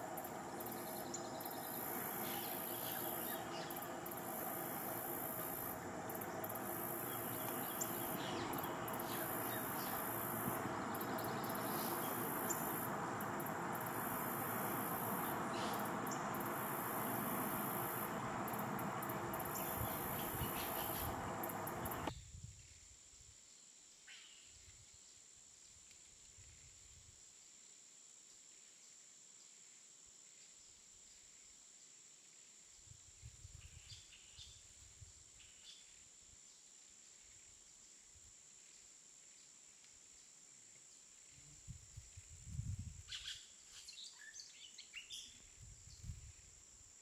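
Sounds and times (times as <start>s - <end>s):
insects chirring: 0.0s - 22.1s
steady hiss: 0.0s - 22.1s.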